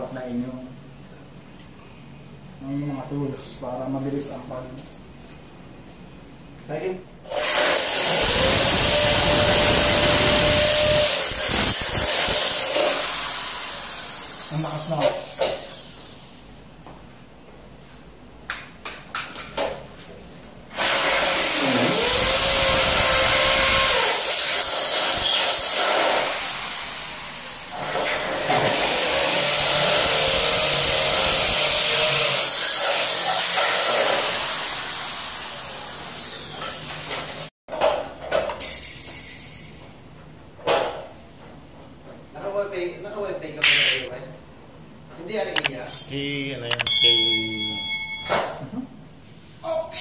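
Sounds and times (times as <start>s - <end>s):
power tool whirring: 7.3s - 16.0s, 20.8s - 37.4s.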